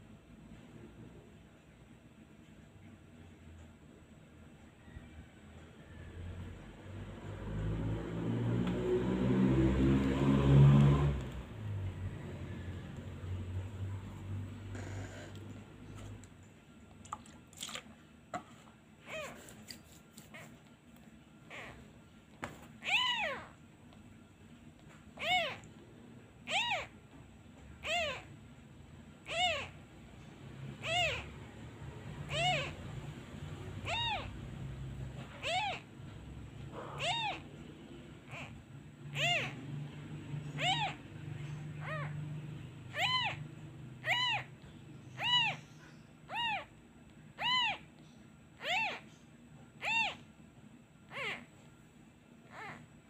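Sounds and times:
kitten mewing: 13.2 - 15.6, 19.0 - 19.6, 21.4 - 21.9, 22.8 - 23.6, 25.2 - 25.7, 26.4 - 27.0, 27.8 - 28.3, 29.2 - 29.8, 30.8 - 31.4, 32.2 - 33.0, 33.6 - 35.9, 36.6 - 37.6, 38.2 - 39.8, 40.4 - 42.3, 42.9 - 45.7, 46.3 - 46.8, 47.4 - 48.0, 48.6 - 49.1, 49.8 - 50.3, 51.1 - 51.6, 52.4 - 52.9.

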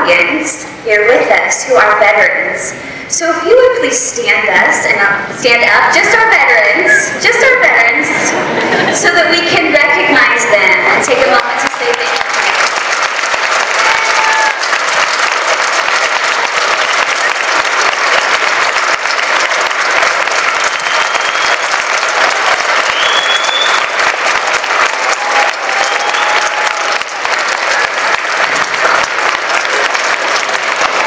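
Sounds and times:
crowd applauding: 11.3 - 31.0.

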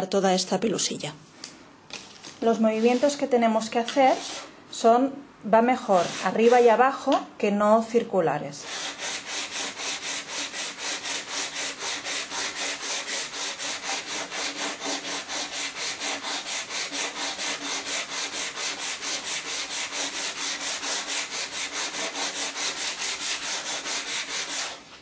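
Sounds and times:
rhythmic scraping on cutting mat: 8.7 - 24.8.

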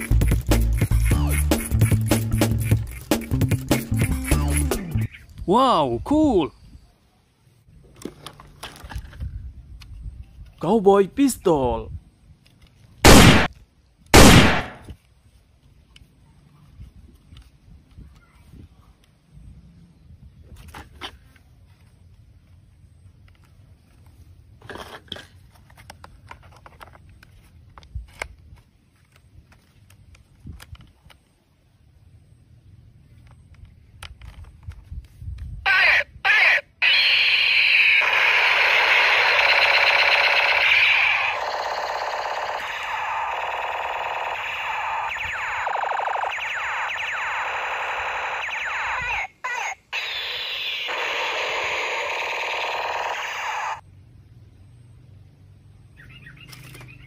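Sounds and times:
toy rifle electronic firing sound: 13.0 - 13.5, 14.2 - 14.9, 36.4 - 53.8.

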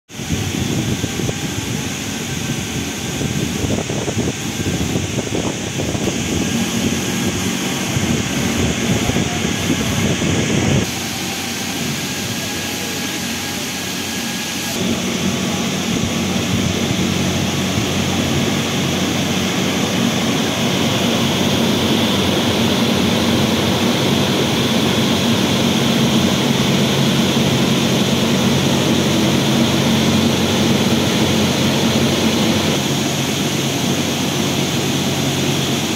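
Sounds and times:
steady low hum: 0.1 - 35.9.

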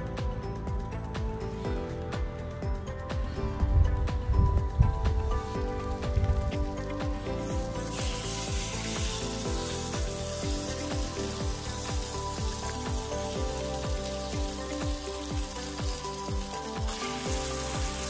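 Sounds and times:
background music with bass beat: 0.0 - 18.0
food sizzling on griddle: 5.4 - 18.0.

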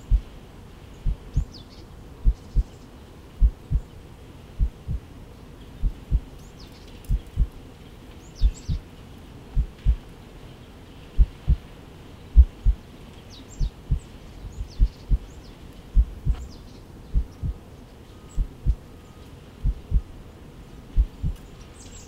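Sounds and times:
heartbeat thumps: 0.0 - 0.3, 1.0 - 1.5, 2.2 - 2.7, 3.4 - 3.9, 4.6 - 5.0, 5.8 - 6.3, 7.1 - 7.6, 9.6 - 10.0, 11.2 - 11.6, 12.4 - 12.8, 14.6 - 15.3, 16.0 - 16.5, 17.2 - 17.6, 18.4 - 18.8, 19.6 - 20.1, 21.0 - 21.4.

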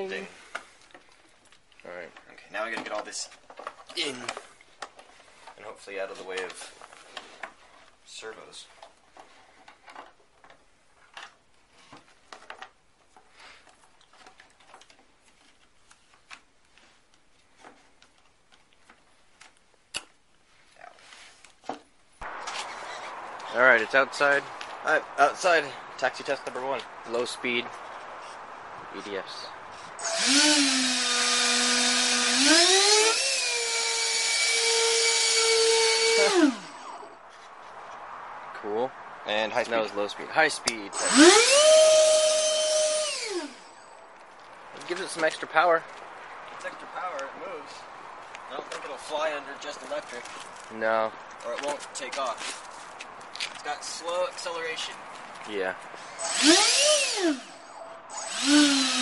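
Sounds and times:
light clicks and rustles: 0.5 - 8.0, 48.1 - 53.8.

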